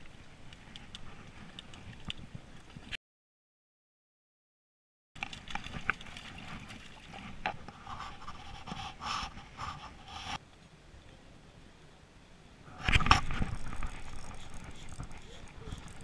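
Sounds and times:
handling clicks and rustles: 5.2s - 8.3s.

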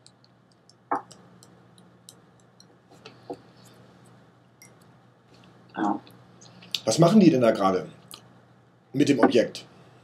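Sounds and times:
faint light clicks and ticks: 0.0s - 6.8s
low electrical hum: 0.0s - 10.0s.

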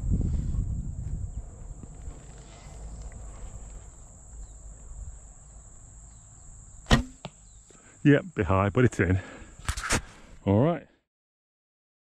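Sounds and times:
bow handling rumble: 0.0s - 7.6s
crickets trilling: 0.0s - 10.8s.

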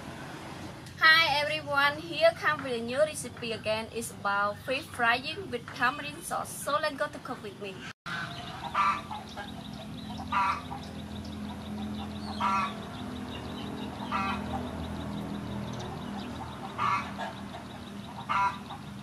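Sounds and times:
fowl calling: 8.1s - 13.0s, 13.8s - 14.8s, 15.8s - 19.0s.

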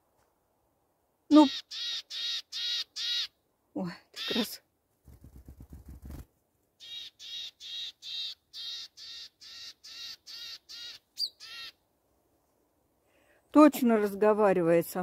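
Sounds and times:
bird harsh buzzy calls: 1.3s - 3.4s, 6.8s - 11.8s
bird wings fluttering: 4.9s - 6.4s.

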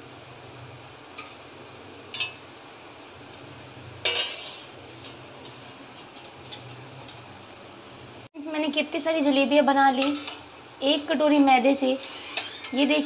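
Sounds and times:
metal spoon clinking on cookware: 2.1s - 2.4s, 4.0s - 4.6s, 10.0s - 10.4s.

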